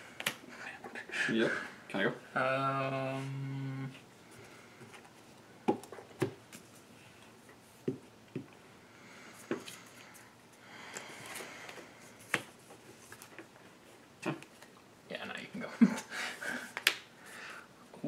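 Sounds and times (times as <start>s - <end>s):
cards rustling: 10.9s - 13.7s.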